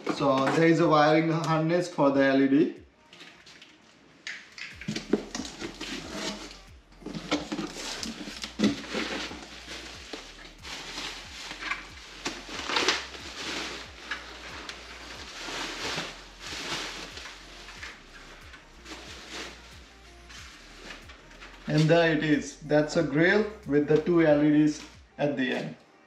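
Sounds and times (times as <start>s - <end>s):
plastic and bubble wrap crinkling: 3.0s - 25.8s
cardboard box handling: 4.9s - 16.1s.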